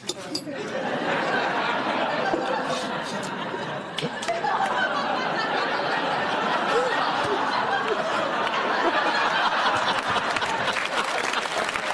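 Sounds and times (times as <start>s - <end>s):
audience laughing: 0.2s - 11.9s
audience clapping: 3.9s - 5.0s, 7.0s - 11.9s.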